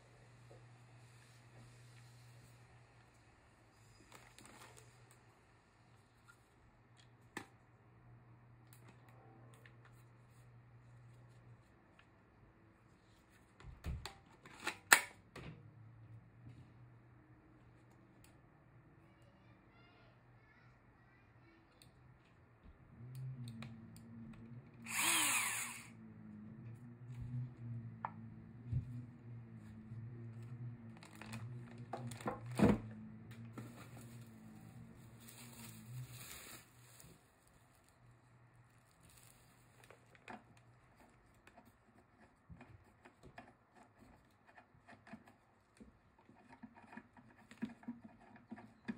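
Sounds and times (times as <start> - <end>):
low steady hum: 15.3 - 48.9
plastic bag crinkling: 34.0 - 38.0.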